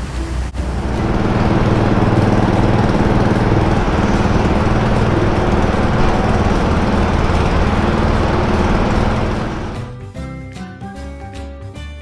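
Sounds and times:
ship machinery noise: 0.0 - 9.8
scooters idling: 0.6 - 9.8.

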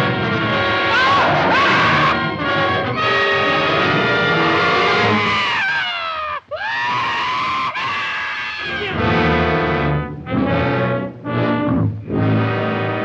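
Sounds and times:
heavy brass chords: 9.0 - 13.0
orchestral music led by brass: 9.0 - 13.0.

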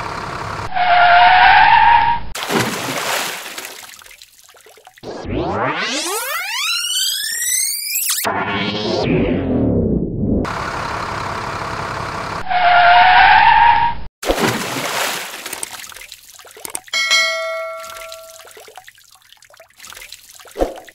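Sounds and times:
toy truck splashing into water: 2.4 - 5.0, 14.2 - 20.9
rising electronic sound effect: 5.0 - 10.4
bell-like notification chime: 17.0 - 18.5.

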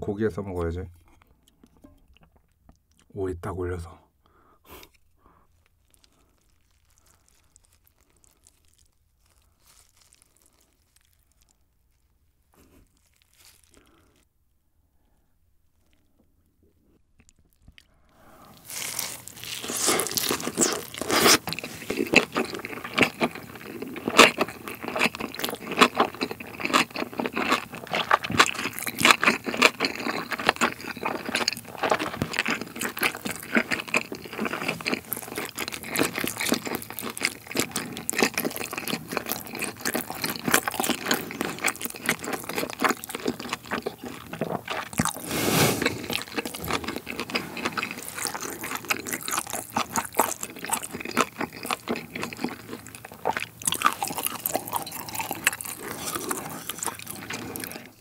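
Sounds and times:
wet chewing and crunching: 1.0 - 3.1, 5.5 - 14.3, 17.1 - 58.0
brief hissing rush: 45.3 - 45.8.

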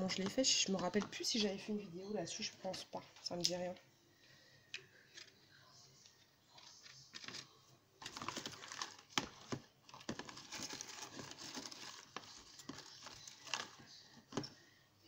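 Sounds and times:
paper and plastic rustling: 6.5 - 14.6.

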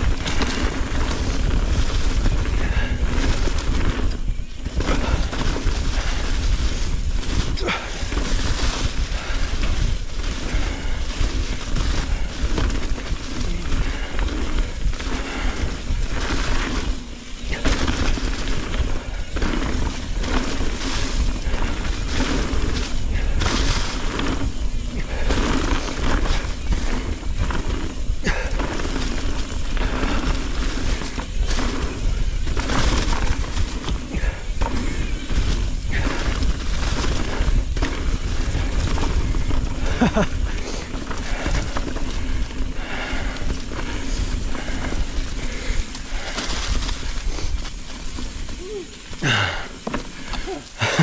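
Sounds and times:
bike rattling over roots: 0.0 - 51.0
tyres crunching over dry leaves: 0.0 - 51.0
wind buffeting microphone: 0.0 - 51.0.

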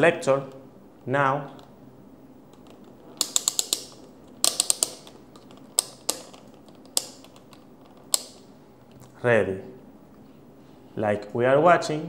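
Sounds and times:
multimeter dial clicking: 2.5 - 8.5.

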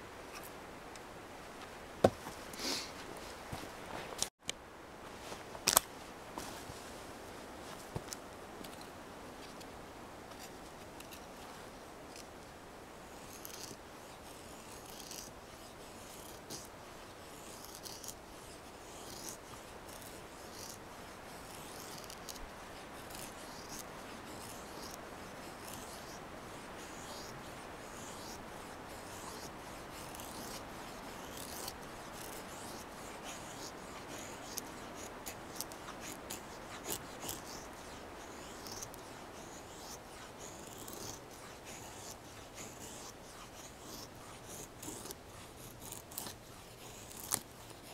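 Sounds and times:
knife shaving wooden stick: 13.1 - 47.9.

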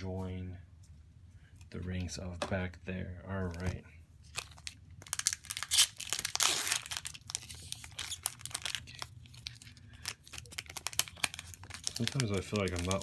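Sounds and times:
foil wrapper crinkling: 4.3 - 13.0
foil wrapper ripping: 4.4 - 13.0.

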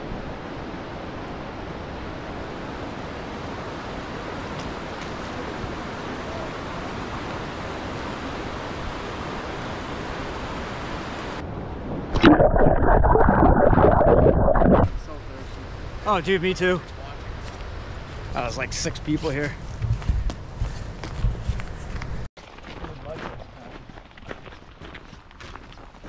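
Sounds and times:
rushing river water: 0.0 - 11.4
rough low rumble: 12.2 - 15.2.

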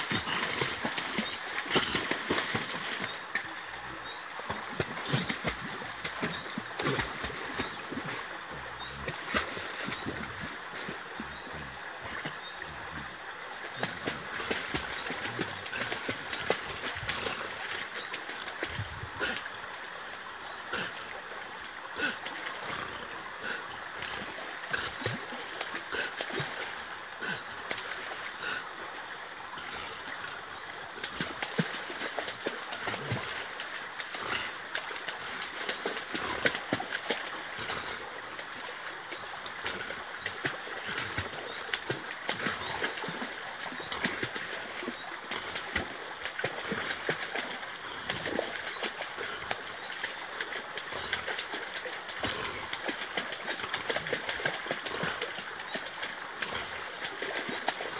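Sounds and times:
dog splashing in water: 0.0 - 3.4, 4.5 - 8.2
sharp slaps of water: 0.0 - 3.5, 4.5 - 8.2, 13.7 - 19.4, 45.3 - 57.9.

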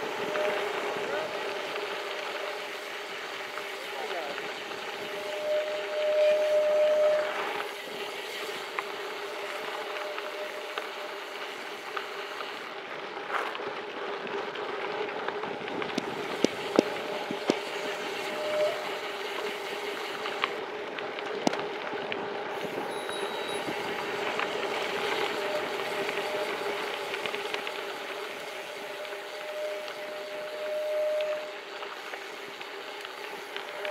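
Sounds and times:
bike tyre rumble: 0.0 - 33.9
bike clicks and knocks on bumps: 10.6 - 18.3, 19.1 - 28.7.

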